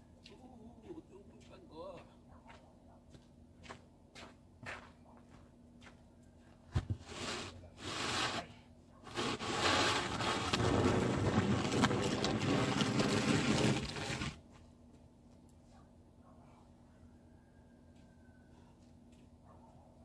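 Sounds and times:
snow shovel scraping pavement: 6.8s - 14.4s.

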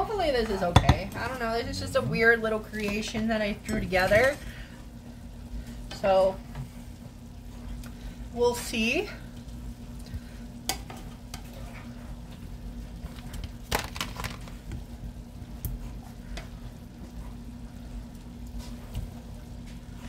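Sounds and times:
low steady hum: 0.0s - 20.0s
food sizzling in a skillet: 0.1s - 11.6s.

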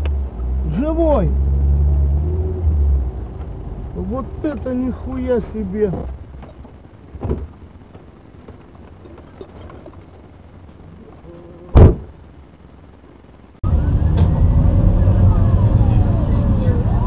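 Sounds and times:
loud heavy thump: 11.7s - 12.2s.

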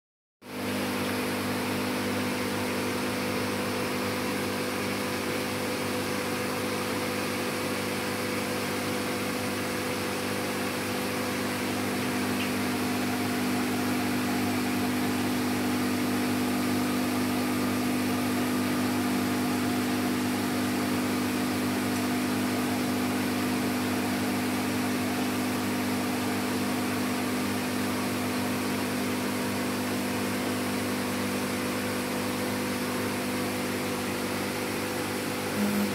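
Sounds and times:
aquarium air pump humming: 0.4s - 35.9s
air bubbling through filter: 5.9s - 27.9s.

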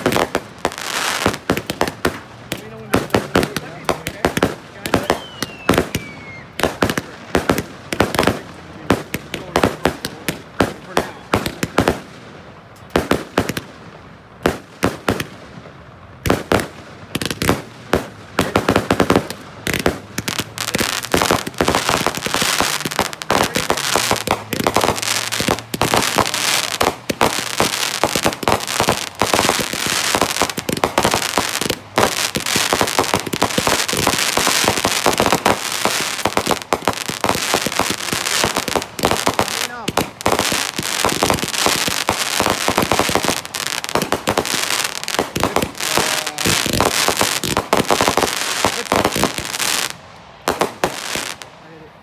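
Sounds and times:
fireworks bangs: 0.0s - 51.9s.

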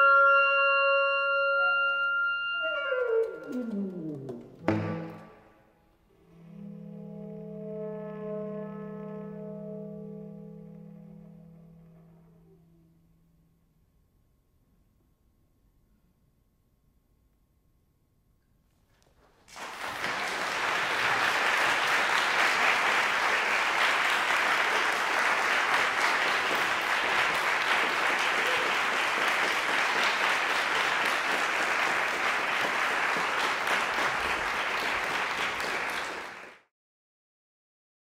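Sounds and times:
audience applauding: 19.2s - 36.7s.

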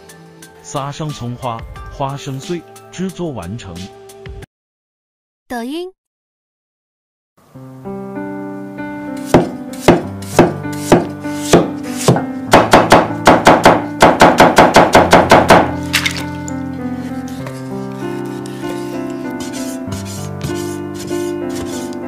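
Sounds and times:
background music: 0.0s - 4.5s, 7.6s - 22.0s
cleaver chopping on wooden board: 9.2s - 15.7s.

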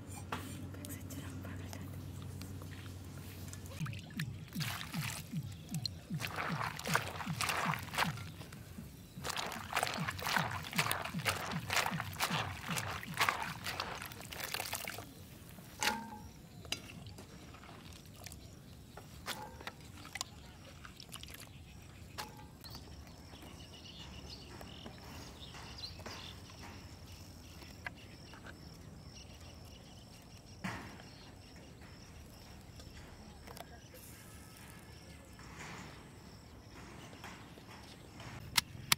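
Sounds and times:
hands swishing in pot of water: 3.8s - 15.1s.

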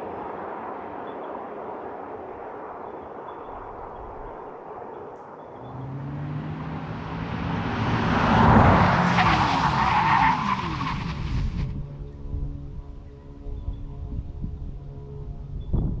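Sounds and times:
tyre and road noise: 5.6s - 11.8s.

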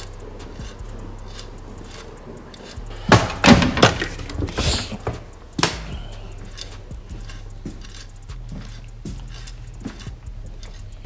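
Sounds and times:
dull thumps and knocks: 3.0s - 6.1s.

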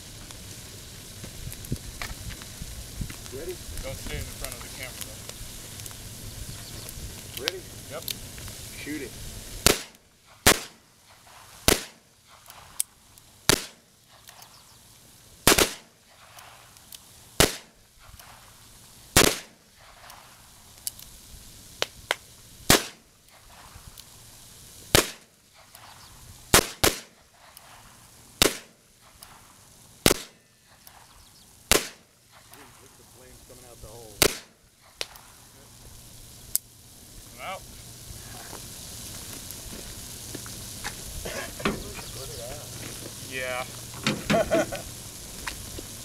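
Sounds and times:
faint sharp cracks: 9.6s - 14.6s, 24.9s - 33.0s, 34.1s - 35.6s.

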